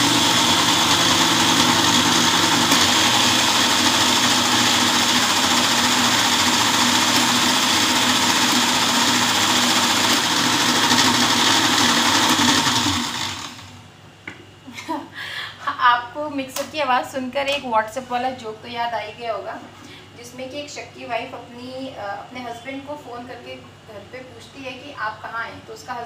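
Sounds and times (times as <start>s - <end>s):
mixer grinder running: 0.0s - 13.8s.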